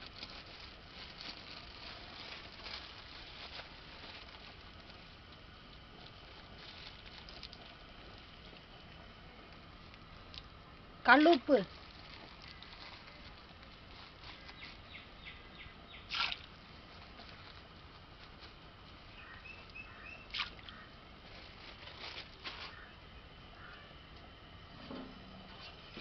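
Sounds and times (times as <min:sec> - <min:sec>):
bird chirps: 0:14.4 - 0:16.1, 0:19.1 - 0:20.9.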